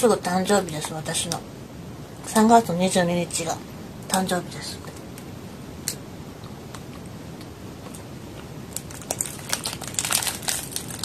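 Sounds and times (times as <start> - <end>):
plastic wrapper crinkling: 8.7 - 11.0.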